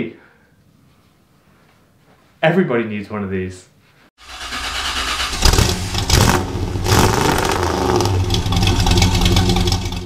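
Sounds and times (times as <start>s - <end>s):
car engine revving: 4.2s - 10.0s.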